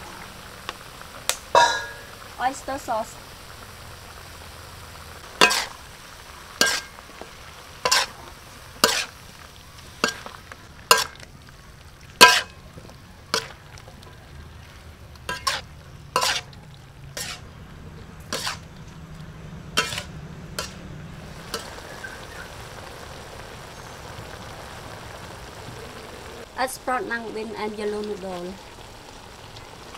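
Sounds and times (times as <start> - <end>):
food sizzling: 0.0 - 29.9
spatula scraping a wok: 5.4 - 5.8, 6.6 - 9.2, 10.0 - 11.2, 12.2 - 12.6, 14.7 - 17.6, 18.2 - 18.9, 19.8 - 20.8.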